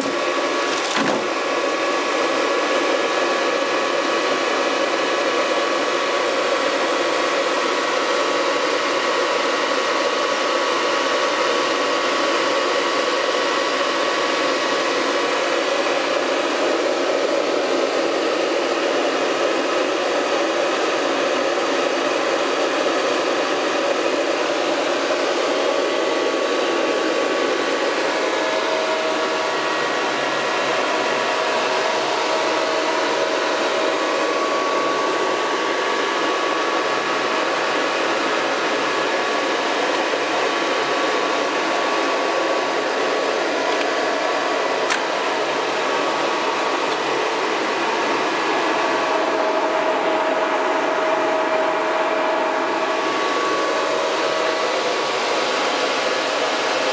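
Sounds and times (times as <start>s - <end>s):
computer fans rushing: 0.0s - 1.6s.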